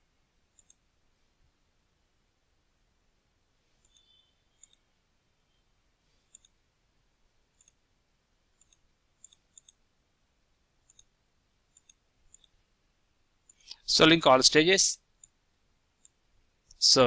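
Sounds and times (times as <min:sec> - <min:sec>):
faint computer mouse clicks: 0:00.5 - 0:00.8, 0:03.8 - 0:04.8, 0:06.3 - 0:06.6, 0:07.6 - 0:07.8, 0:08.6 - 0:09.8, 0:10.8 - 0:11.1, 0:11.7 - 0:12.6.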